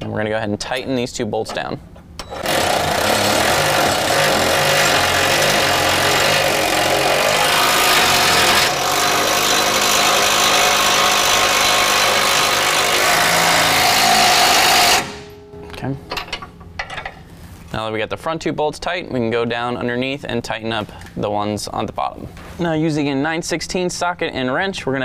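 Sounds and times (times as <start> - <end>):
cordless drill running: 2.2 - 15.3.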